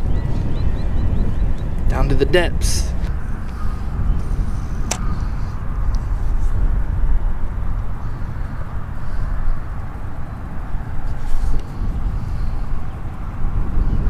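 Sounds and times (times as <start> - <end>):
wind buffeting microphone: 0.0 - 14.0
sharp click: 4.9 - 5.1.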